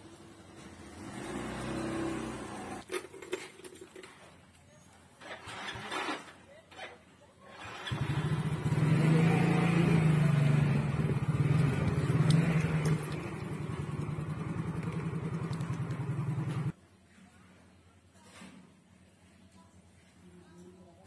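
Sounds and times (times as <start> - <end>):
small motorcycle engine running: 0.7 - 2.8, 7.6 - 16.8.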